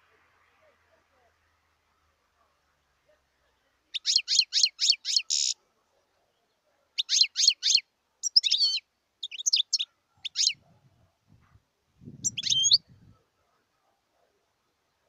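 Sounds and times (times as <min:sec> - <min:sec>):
goldfinch singing: 0:03.9 - 0:05.6, 0:07.0 - 0:10.6, 0:12.2 - 0:12.9.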